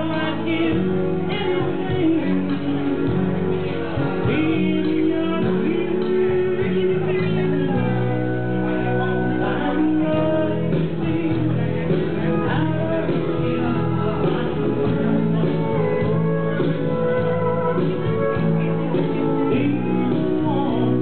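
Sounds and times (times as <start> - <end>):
accompanying music: 0.0 - 21.0
woman singing into a microphone: 0.0 - 21.0.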